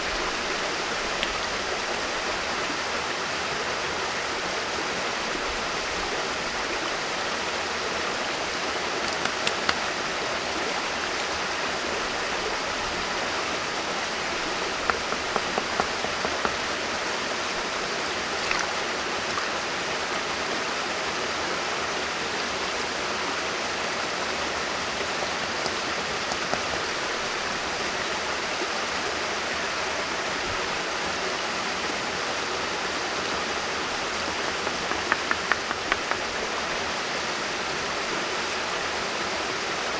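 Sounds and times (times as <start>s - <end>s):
rocky stream running: 0.0s - 39.9s
light clicks and taps of stones: 9.0s - 9.8s, 14.8s - 16.8s, 34.6s - 36.3s.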